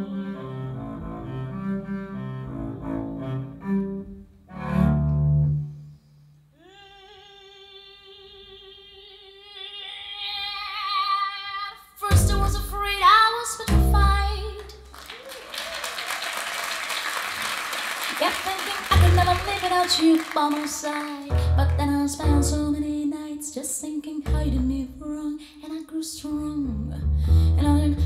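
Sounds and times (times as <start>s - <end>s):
double bass phrases: 0.0s - 5.8s, 12.1s - 14.9s, 18.9s - 19.8s, 21.3s - 23.3s, 24.2s - 25.4s, 26.2s - 28.0s.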